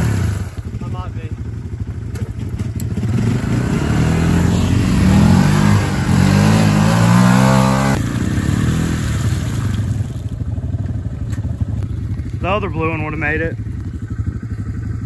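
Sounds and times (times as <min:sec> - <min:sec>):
off-road vehicle engine revving: 0:00.0 - 0:01.3, 0:02.1 - 0:10.4.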